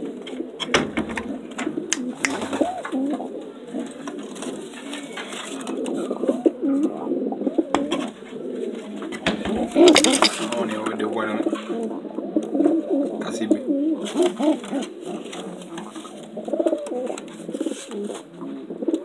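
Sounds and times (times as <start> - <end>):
pigeons cooing: 0.0 - 19.0
sharp clicks and taps: 0.6 - 2.7, 7.8 - 8.1.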